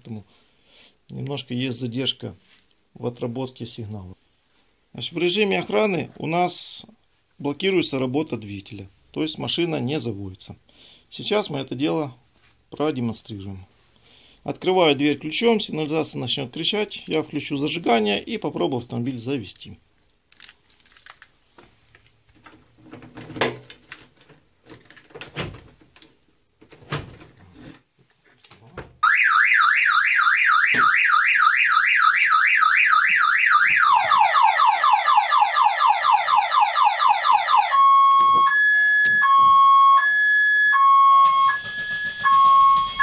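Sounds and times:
car alarm siren: 0:29.0 - 0:43.0.

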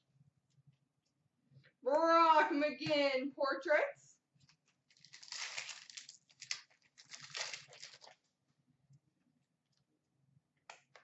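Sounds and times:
wrapper tearing and crinkling: 0:04.9 - 0:08.2.

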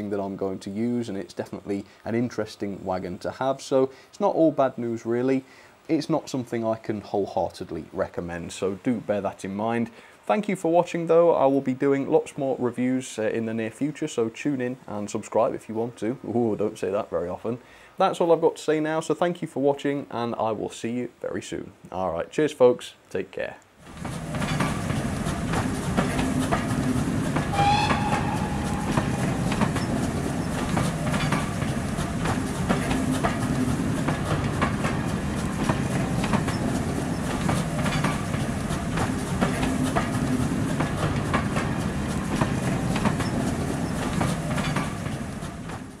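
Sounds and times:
train rumble: 0:23.8 - 0:46.0
train wheels clicking over rail joints: 0:23.8 - 0:46.0
train whistle: 0:27.4 - 0:30.6.

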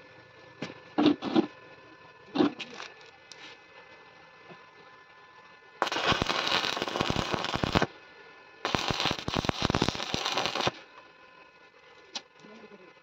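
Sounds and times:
arc welding: 0:05.8 - 0:08.0, 0:08.6 - 0:10.9.

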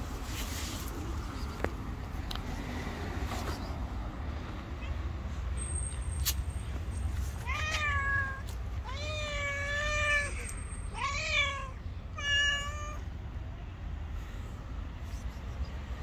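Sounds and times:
cat meowing: 0:07.4 - 0:13.0.

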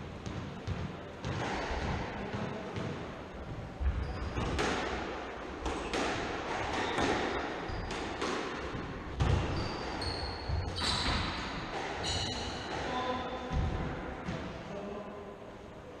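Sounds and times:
shoe squeaks: 0:03.9 - 0:04.5, 0:06.6 - 0:08.2, 0:09.2 - 0:13.0.

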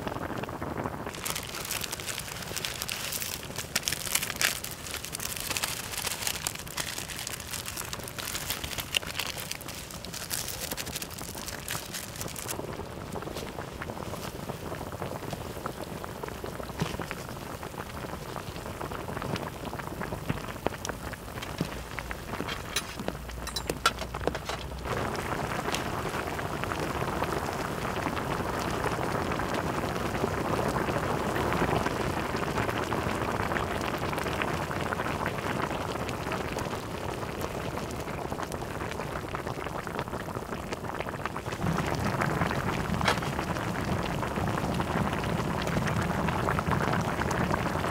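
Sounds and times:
broth boiling hard in a pan: 0:00.0 - 0:47.9.

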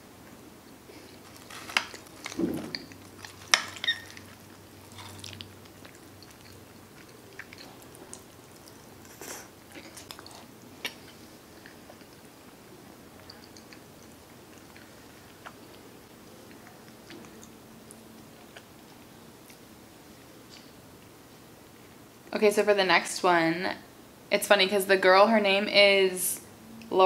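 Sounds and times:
chewing and wet mouth sounds: 0:00.9 - 0:21.1.

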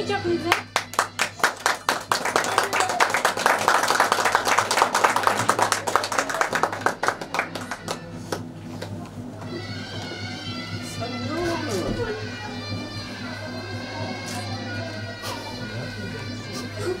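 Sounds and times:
people clapping: 0:00.4 - 0:09.0.

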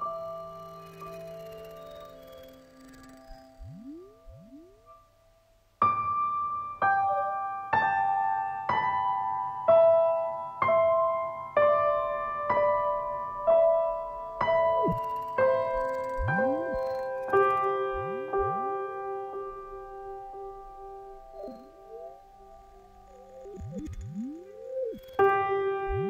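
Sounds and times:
sliding tone: 0:00.0 - 0:04.9, 0:14.8 - 0:26.0
slow soft piano chords: 0:00.0 - 0:26.0.

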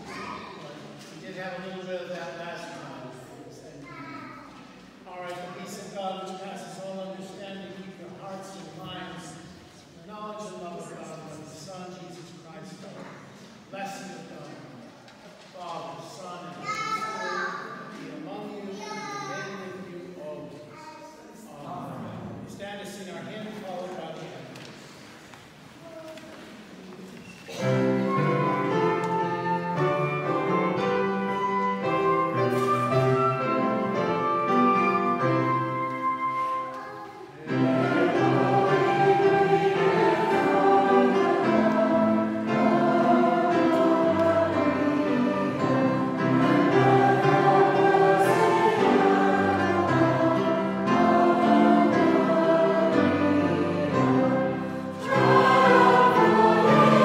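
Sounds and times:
congregation singing a hymn: 0:05.1 - 0:12.8, 0:27.5 - 0:36.7, 0:37.3 - 0:57.0
pipe organ: 0:27.7 - 0:36.5, 0:37.4 - 0:57.0.

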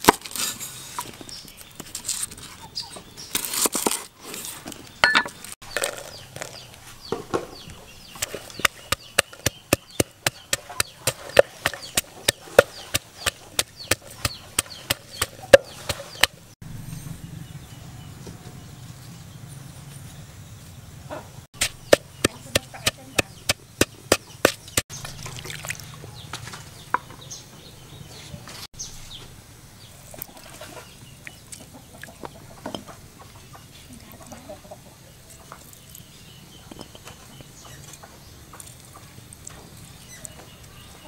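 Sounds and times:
chickens clucking: 0:30.2 - 0:35.8.

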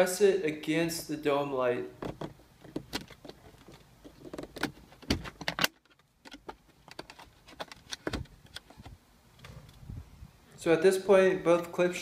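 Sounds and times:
plastic clicks and scrapes: 0:02.0 - 0:09.8.

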